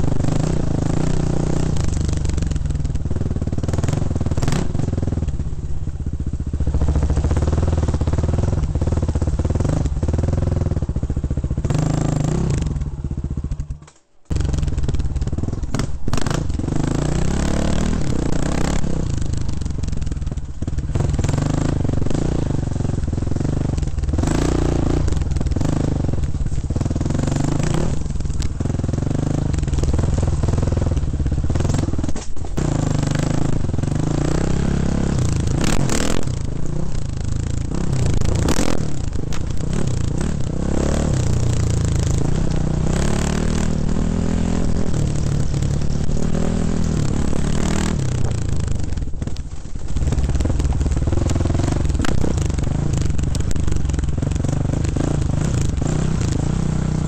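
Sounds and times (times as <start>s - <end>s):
dirt bike engine revving: 0.0s - 5.2s, 6.4s - 57.0s
bike clattering over bumps: 48.0s - 56.5s.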